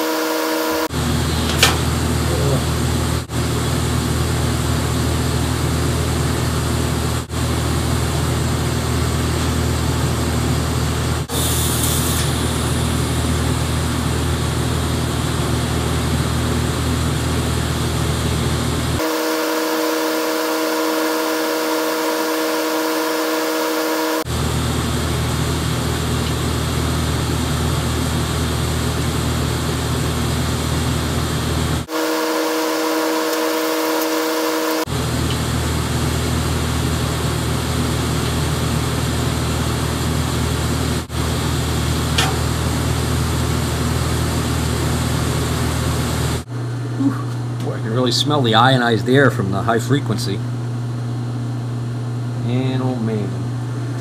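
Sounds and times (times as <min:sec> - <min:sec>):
welder hum and hiss: 0:10.9 - 0:46.5.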